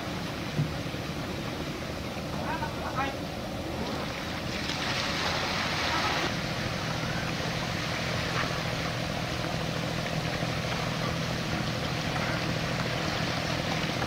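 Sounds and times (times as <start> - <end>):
boat engine running: 0.0 - 14.0
water hissing: 3.8 - 14.0.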